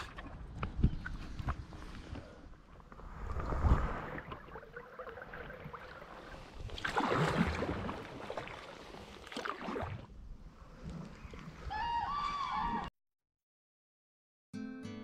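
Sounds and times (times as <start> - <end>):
water sloshing along hull: 0.0 - 11.7
paddle splashing in water: 2.8 - 11.7.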